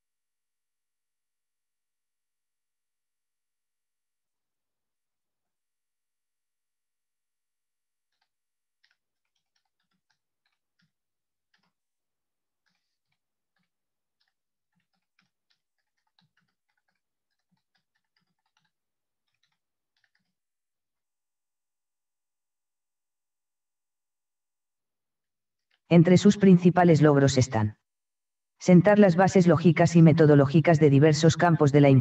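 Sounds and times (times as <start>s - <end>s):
faint keyboard typing: 8.0s - 20.5s.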